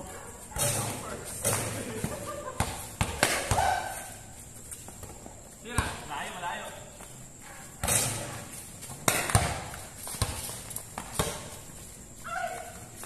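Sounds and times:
basketball bouncing on concrete: 0.5 - 4.0, 4.8 - 6.1, 7.0 - 11.8.

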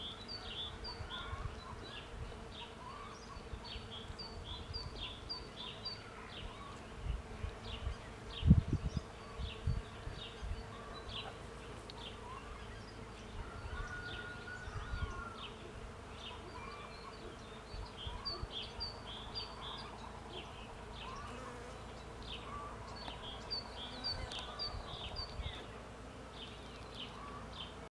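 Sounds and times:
birds chirping: 0.0 - 27.9
bees buzzing: 14.4 - 27.9.

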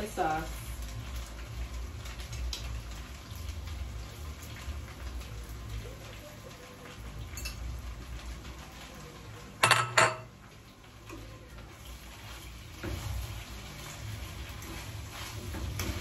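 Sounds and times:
utensil clattering against cookware: 9.6 - 10.3.

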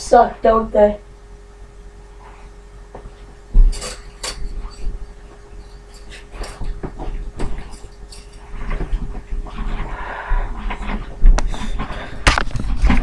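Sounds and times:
faint steady hum: 0.0 - 13.0
heavy thump: 2.9 - 3.8.

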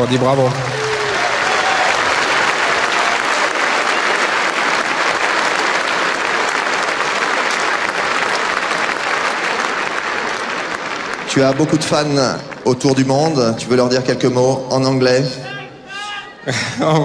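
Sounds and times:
crowd applauding: 0.0 - 13.4.

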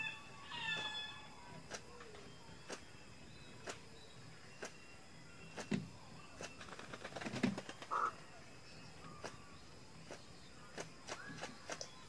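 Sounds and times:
bird harsh crow-like calls: 0.0 - 1.4, 7.9 - 8.2
high insect drone: 0.0 - 12.0.

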